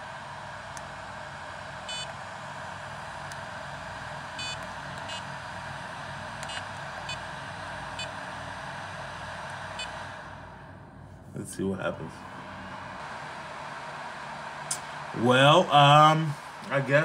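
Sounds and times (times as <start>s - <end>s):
charger cooling fan: 0.0s - 17.0s
short charger beeps: 1.9s - 2.1s, 4.4s - 5.2s, 6.4s - 7.2s.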